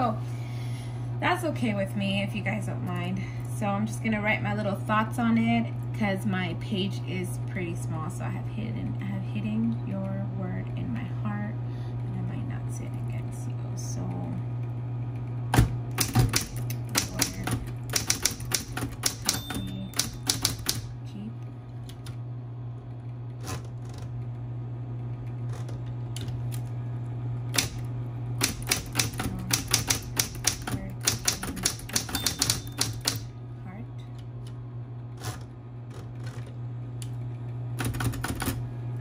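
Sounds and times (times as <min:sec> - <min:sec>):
typewriter motor hum: 0:15.2 - 0:21.0, 0:22.8 - 0:26.8, 0:27.4 - 0:33.3, 0:34.1 - 0:38.7
typewriter key strikes: 0:15.6 - 0:20.9, 0:28.4 - 0:33.2.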